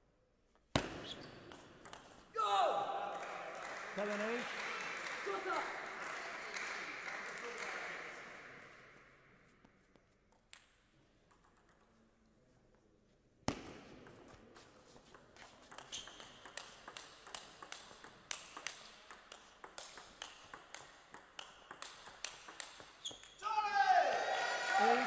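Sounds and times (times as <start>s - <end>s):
table tennis ball clicking: 15.7s - 23.4s.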